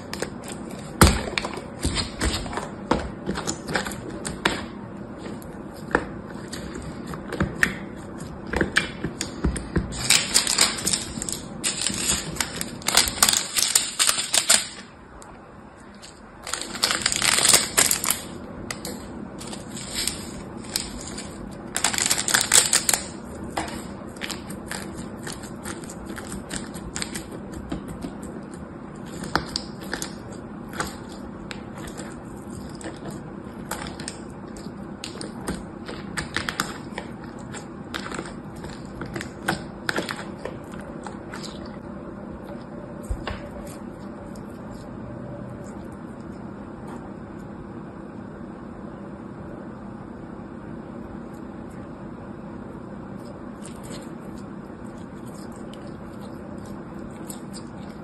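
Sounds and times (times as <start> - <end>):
foam beads crackling in slime: 9.9 - 14.8, 16.4 - 18.3, 19.4 - 23.2.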